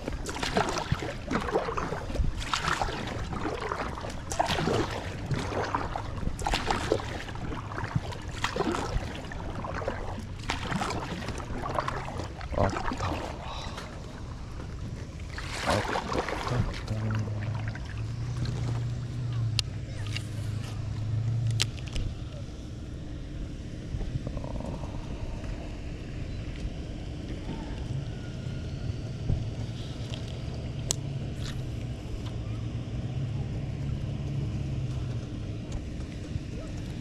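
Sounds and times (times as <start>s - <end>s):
water splashes and knocks: 0.0s - 19.2s.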